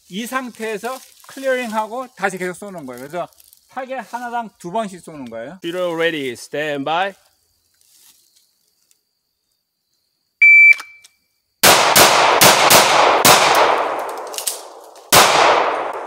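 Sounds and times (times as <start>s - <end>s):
shot timer beep: 10.4s - 11.0s
handgun shots with echo: 11.6s - 16.0s.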